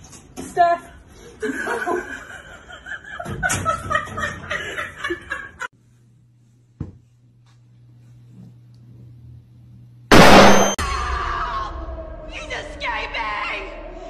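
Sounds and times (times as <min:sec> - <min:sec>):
people laughing: 0:01.4 - 0:05.7.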